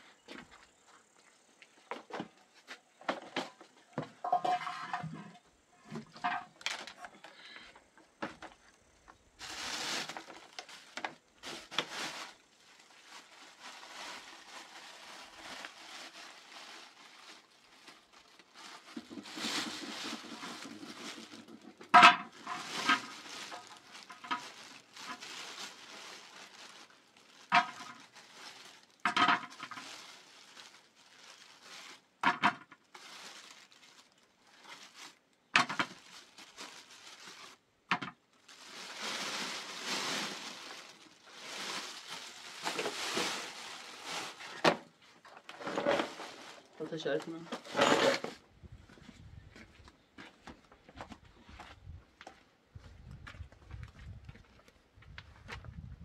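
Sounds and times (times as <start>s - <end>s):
scraping and rustling: 1.9s - 7.5s, 9.3s - 55.8s.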